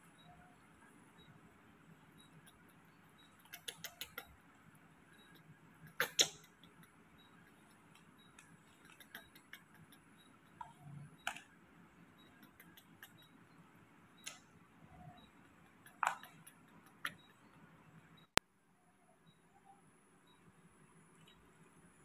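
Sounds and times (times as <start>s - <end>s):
sharp clicks and light taps: 2.2s - 4.4s, 5.1s - 13.5s, 14.2s - 18.5s.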